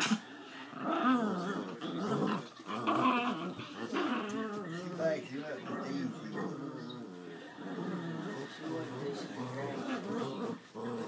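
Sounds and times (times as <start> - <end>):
dogs play-growling: 0.0 - 11.0.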